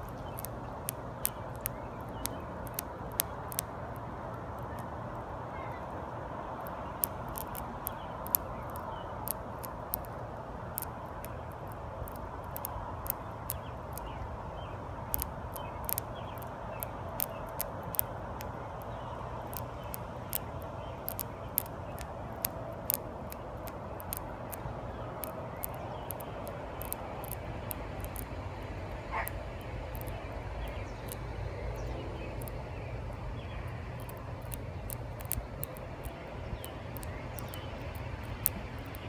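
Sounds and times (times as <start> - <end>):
dragonfly chewing prey: 0.0 - 4.9, 6.6 - 39.0
low background hum: 0.0 - 39.0.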